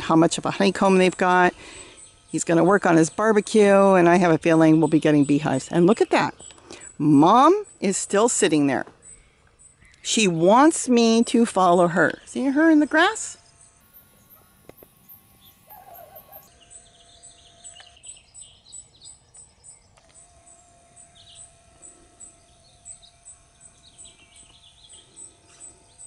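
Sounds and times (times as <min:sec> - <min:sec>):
faint birdsong: 0:09.0 - 0:10.4, 0:12.9 - 0:26.0
cricket chirping: 0:13.4 - 0:16.5.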